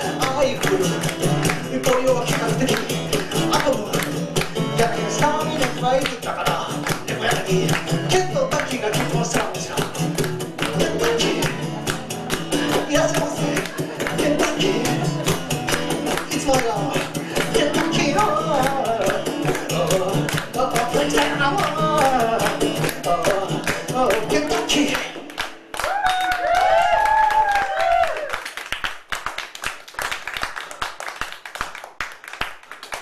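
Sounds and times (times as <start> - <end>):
live music with singing: 0.0 - 28.2
audience clapping: 0.0 - 33.0.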